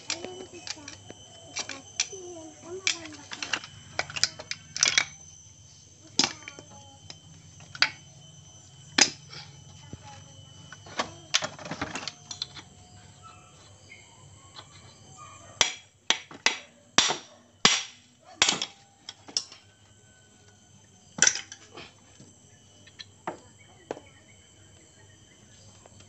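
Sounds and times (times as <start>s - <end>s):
clattering of case parts: 2.8s - 5.2s, 6.1s - 8.0s, 10.7s - 12.7s, 21.2s - 22.3s.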